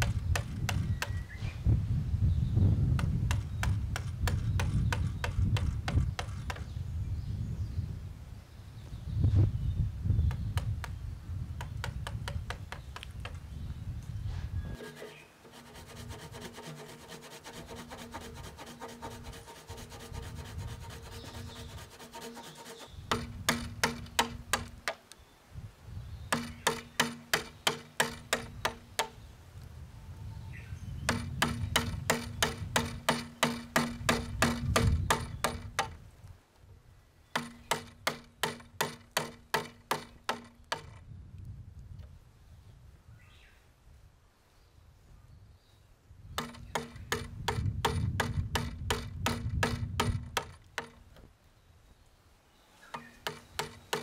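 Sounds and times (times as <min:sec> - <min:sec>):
chisel tapped into wood: 0:11.6 - 0:13.4, 0:23.1 - 0:25.0, 0:26.3 - 0:29.2, 0:31.1 - 0:36.0, 0:37.4 - 0:41.0, 0:46.4 - 0:51.0, 0:53.0 - 0:54.0
wood scraping: 0:14.3 - 0:25.0, 0:52.8 - 0:54.0.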